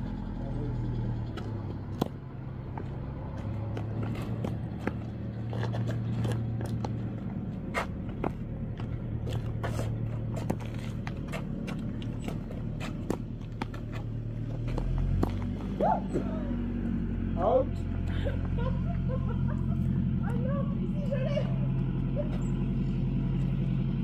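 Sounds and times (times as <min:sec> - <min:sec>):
shoes scuffing on asphalt: 0:02.7 - 0:15.8.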